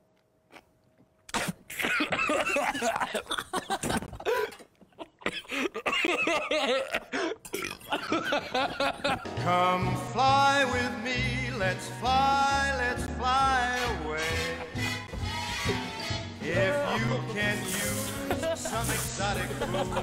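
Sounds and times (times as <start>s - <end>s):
coughing: 1.3s - 9.2s
man and woman laughing: 1.9s - 9.3s, 18.2s - 20.0s.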